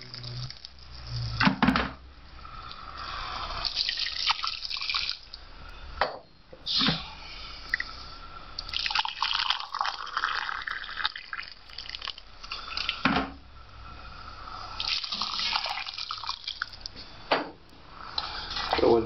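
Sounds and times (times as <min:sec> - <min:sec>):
water pouring into mug: 0:03.6 - 0:05.4, 0:08.6 - 0:13.0, 0:14.8 - 0:16.9
water pouring into pot: 0:03.6 - 0:05.4, 0:08.6 - 0:13.0, 0:14.8 - 0:16.9.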